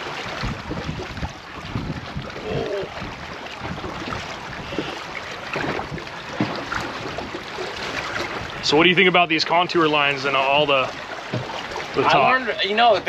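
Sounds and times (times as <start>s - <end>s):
wind buffeting microphone: 0.0s - 9.3s
water slapping against boat hull: 0.0s - 13.0s.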